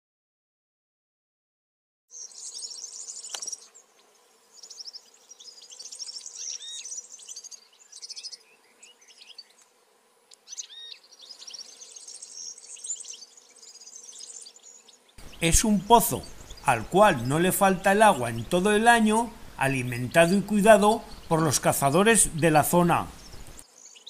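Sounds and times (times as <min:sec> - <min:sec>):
songbirds singing trills: 0:02.1 - 0:09.7, 0:10.3 - 0:24.0
faint steady hum: 0:15.2 - 0:23.7.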